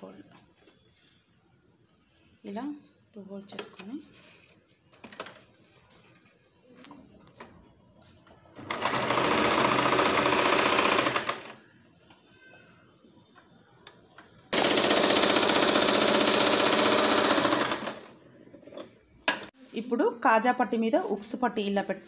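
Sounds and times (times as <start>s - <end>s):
sewing machine stitching: 8.6s - 11.6s, 14.5s - 18.2s.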